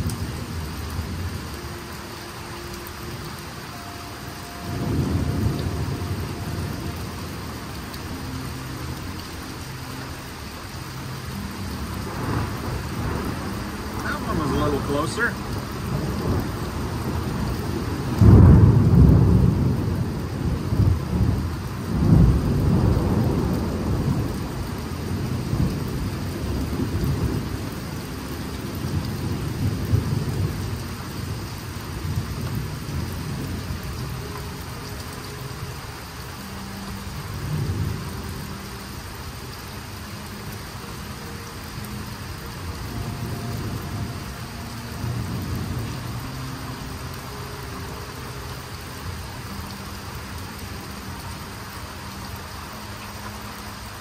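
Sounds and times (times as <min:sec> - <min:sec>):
steady rain: 0:00.0 - 0:54.0
rumbling thunder: 0:04.6 - 0:07.6, 0:12.0 - 0:34.2.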